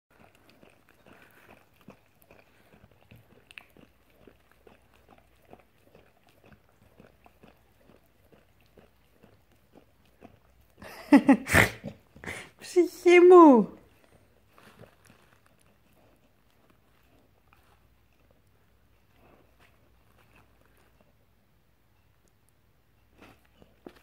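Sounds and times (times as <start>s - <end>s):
dog licking ice cream: 0.1s - 12.2s
person's voice: 12.3s - 13.8s.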